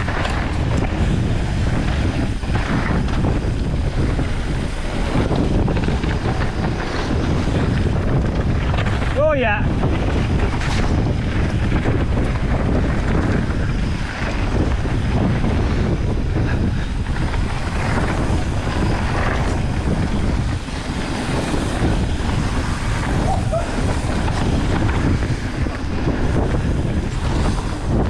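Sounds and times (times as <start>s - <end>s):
mountain bike rumbling on trail: 0.0s - 28.0s
wind buffeting microphone: 0.0s - 28.0s.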